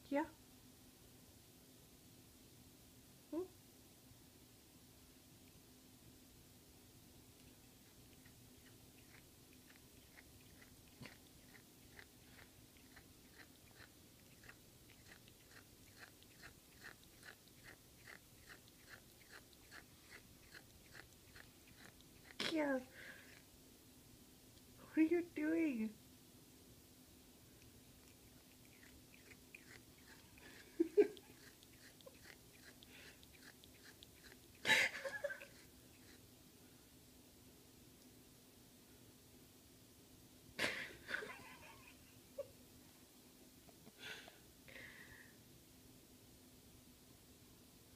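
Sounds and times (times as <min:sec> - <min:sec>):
cat mouth clicking: 0:07.4 - 0:22.4, 0:28.0 - 0:34.6
breathy sniffing: 0:29.1 - 0:34.7.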